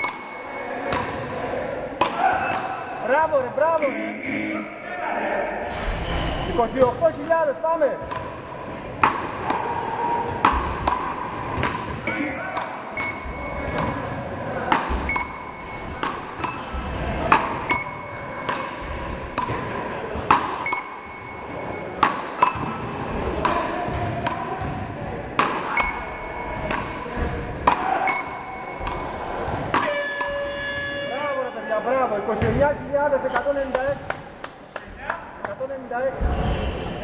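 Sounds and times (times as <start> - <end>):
short electronic beeps: 0.0 - 0.6, 3.8 - 4.8, 12.9 - 13.6, 15.1 - 16.7, 17.7 - 18.0, 20.6 - 21.9, 25.7 - 26.5, 28.0 - 28.8
paddle hitting ball: 22.0 - 25.8.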